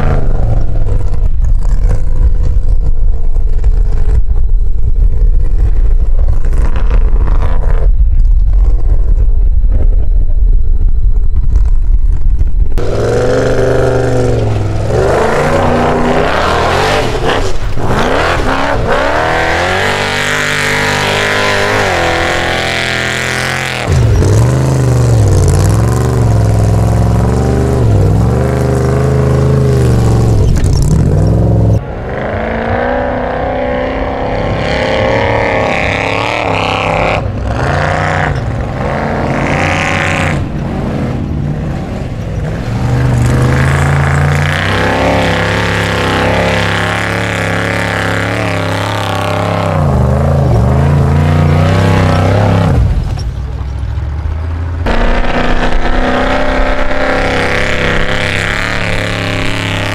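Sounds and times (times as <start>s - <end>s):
car engine revving hard: 12.8s - 53.0s, 54.8s - 59.9s.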